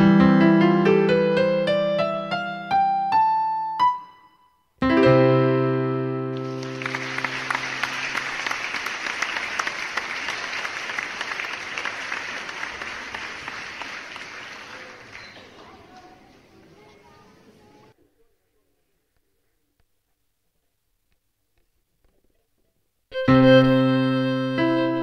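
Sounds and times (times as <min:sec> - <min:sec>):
piano playing: 0:00.0 - 0:08.8, 0:23.1 - 0:25.0
audience applause: 0:06.3 - 0:16.5.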